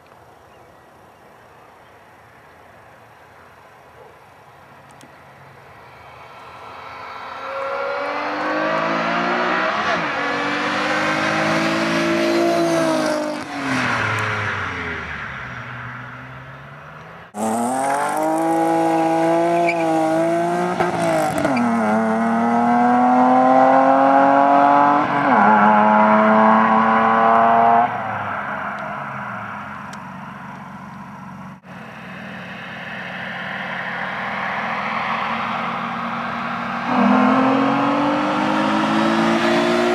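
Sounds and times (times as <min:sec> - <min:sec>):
car passing under hard acceleration: 0:04.4 - 0:39.9
car accelerating through gears: 0:06.2 - 0:15.7, 0:16.4 - 0:29.3, 0:33.9 - 0:39.9.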